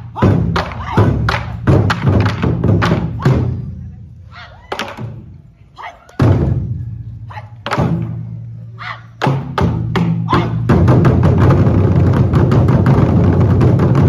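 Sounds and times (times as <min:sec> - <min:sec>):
barrel drums hits and roll: 0:00.2 - 0:03.4, 0:09.2 - 0:14.0.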